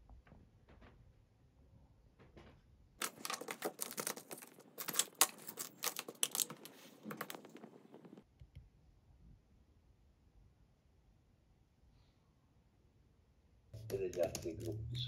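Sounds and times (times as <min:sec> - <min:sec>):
desk items clicking and tapping: 0:03.0 - 0:08.2.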